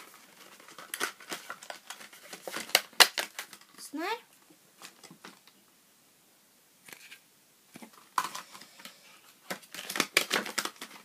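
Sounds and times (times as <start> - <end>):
packaging rustling and crinkling: 0.0 - 3.8, 7.8 - 11.0.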